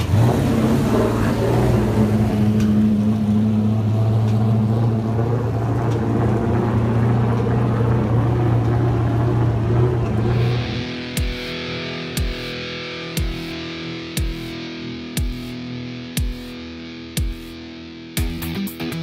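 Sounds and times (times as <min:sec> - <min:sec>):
car engine running at low speed: 0:00.0 - 0:12.5.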